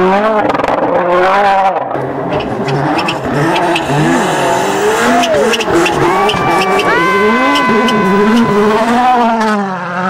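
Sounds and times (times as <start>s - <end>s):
rally car engine revving: 0.0s - 10.0s
engine crackles: 1.9s - 9.6s.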